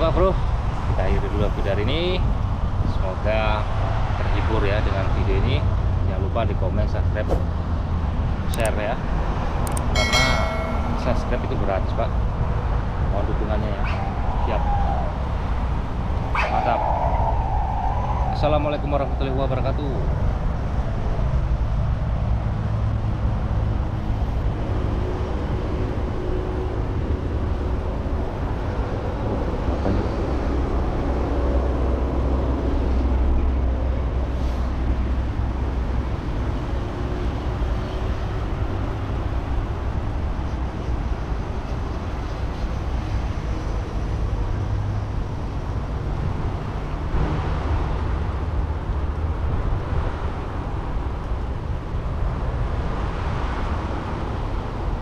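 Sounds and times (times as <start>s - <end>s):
road traffic rumble: 0.0s - 55.0s
passing vehicle engine hum: 19.0s - 55.0s.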